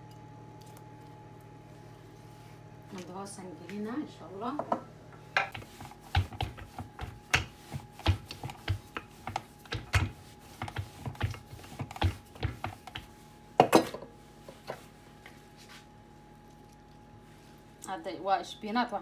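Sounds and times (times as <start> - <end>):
rolling pin knocking on wood: 5.4 - 13.1.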